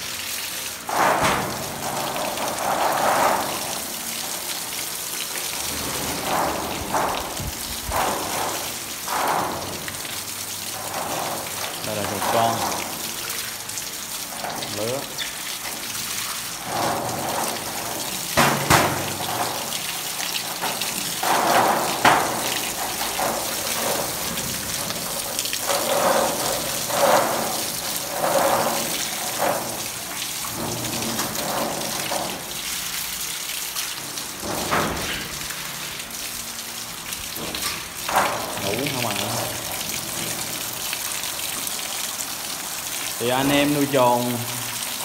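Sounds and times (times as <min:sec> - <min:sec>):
hose spraying water: 0:00.0 - 0:45.0
sharp knocks: 0:18.3 - 0:19.7.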